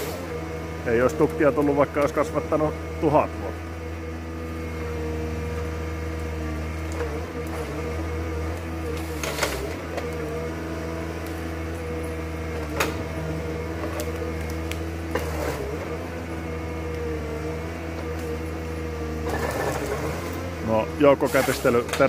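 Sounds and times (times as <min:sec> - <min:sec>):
diesel engine running under load: 0:00.0 - 0:22.0
sharp wood cracks: 0:13.7 - 0:15.8.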